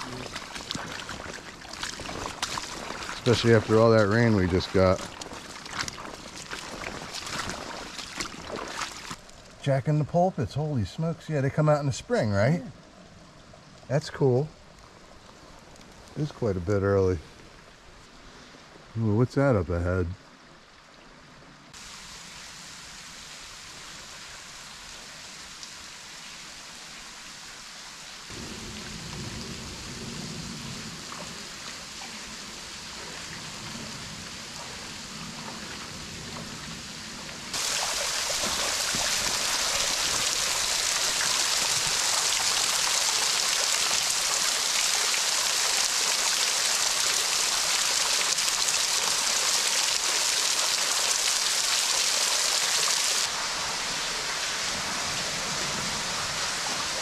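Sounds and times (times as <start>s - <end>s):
water pouring and dripping off rock: 0.0s - 9.7s, 14.7s - 16.8s, 37.3s - 53.5s
creek water rushing: 0.0s - 12.7s, 13.4s - 57.0s.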